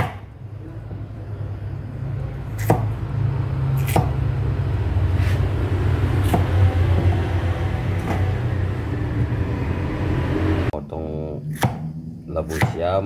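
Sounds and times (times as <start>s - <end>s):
knife chopping on wooden block: 0.0s - 0.3s, 2.6s - 2.9s, 3.8s - 4.2s, 6.2s - 7.2s, 11.5s - 11.9s, 12.5s - 12.8s
steady low hum: 0.0s - 13.0s.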